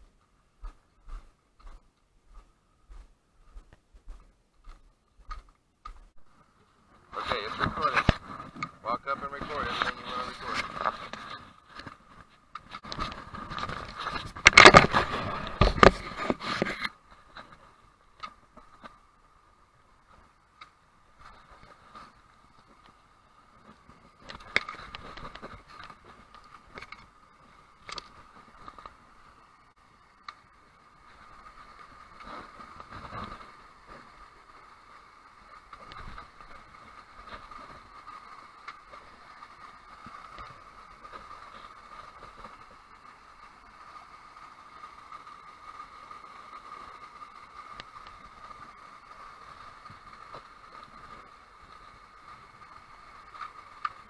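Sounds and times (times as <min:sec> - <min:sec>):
small creek cascade rushing: 0:06.4 - 0:54.0
faint ticks: 0:20.1 - 0:23.0, 0:30.2 - 0:30.4, 0:31.0 - 0:54.0.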